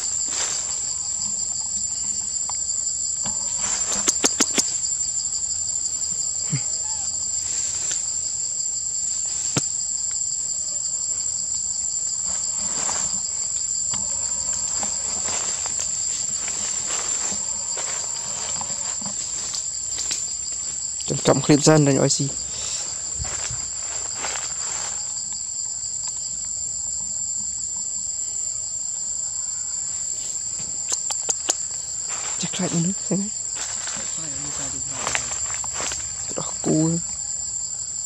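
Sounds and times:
insects droning: 0.0s - 38.0s
sharp clicks: 4.0s - 4.7s.

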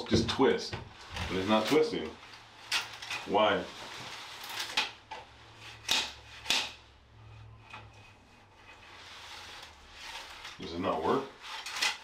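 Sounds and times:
curtain rod clacks: 1.1s - 3.4s, 11.4s - 12.0s.

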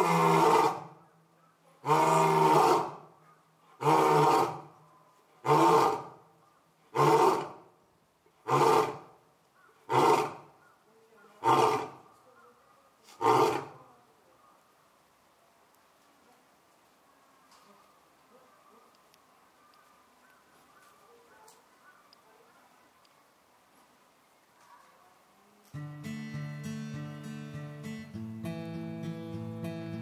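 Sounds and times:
lion roaring: 0.0s - 0.9s, 1.8s - 3.0s, 3.8s - 4.7s, 5.4s - 6.2s, 6.9s - 7.6s, 8.4s - 9.1s, 9.8s - 10.4s, 11.4s - 12.0s, 13.2s - 13.8s.

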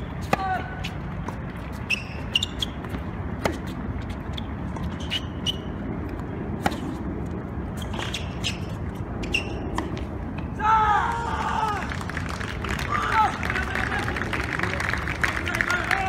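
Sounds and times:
racket hitting ball: 0.0s - 3.8s, 4.7s - 7.0s, 7.8s - 10.5s
tennis ball bouncing: 0.0s - 7.0s, 7.8s - 10.5s.

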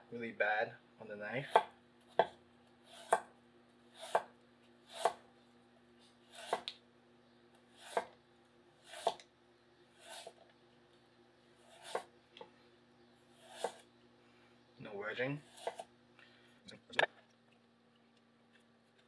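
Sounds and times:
knife slicing carrot on board: 1.5s - 3.3s, 3.9s - 4.3s, 4.9s - 5.2s, 6.3s - 6.7s, 8.8s - 9.2s, 11.6s - 12.1s, 13.4s - 13.8s, 15.4s - 15.9s.

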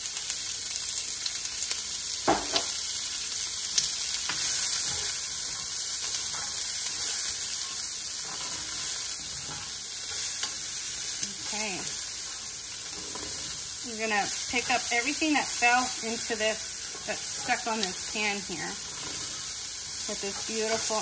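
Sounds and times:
onion sizzling in oil: 0.0s - 21.0s
spatula knocking on pan: 2.3s - 2.8s
spatula scraping pan: 4.3s - 21.0s.

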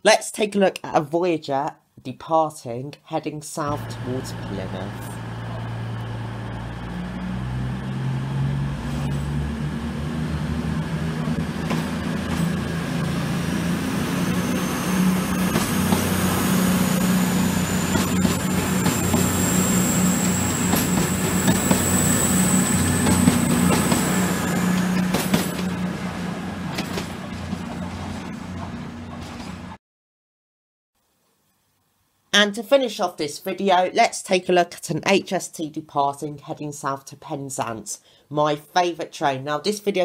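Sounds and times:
high rising whine: 3.7s - 29.1s
diesel train engines revving: 3.7s - 29.8s.

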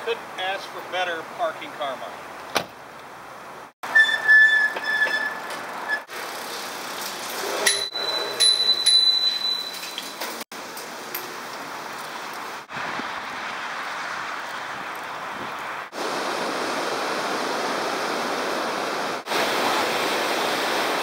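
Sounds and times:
wind: 0.0s - 21.0s
high squeals: 3.8s - 6.2s
bicycle tyre hiss: 5.6s - 7.7s.

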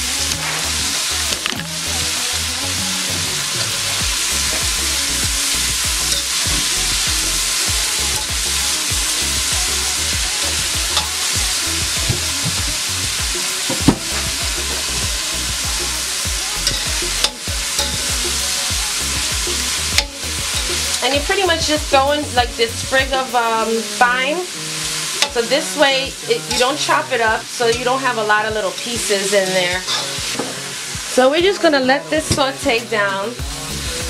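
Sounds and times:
vegetables sizzling in pan: 0.0s - 34.0s
utensil stirring in pan: 2.5s - 21.0s.

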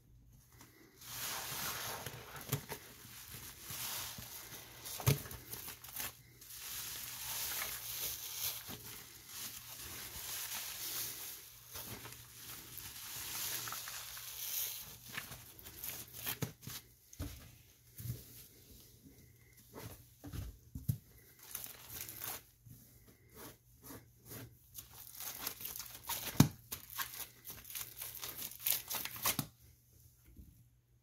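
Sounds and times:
wet sponge squelching: 0.8s - 16.4s.

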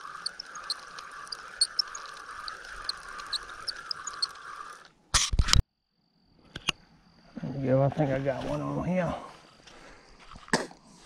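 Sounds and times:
bird chirps: 0.0s - 4.8s
frogs calling: 0.0s - 4.9s.

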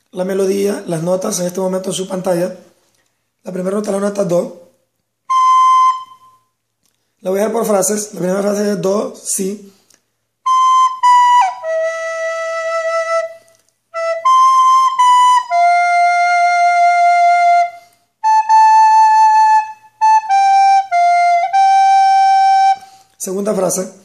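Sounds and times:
recorder playing slow melody: 5.3s - 6.5s, 10.4s - 23.1s.

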